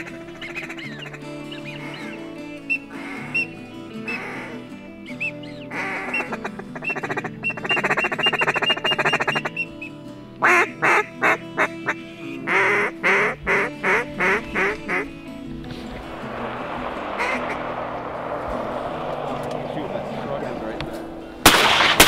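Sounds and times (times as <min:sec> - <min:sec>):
duck quacking: 0:00.0 - 0:04.8, 0:05.7 - 0:09.8, 0:10.4 - 0:15.2
background music: 0:00.0 - 0:22.0
steady hiss: 0:15.5 - 0:22.0.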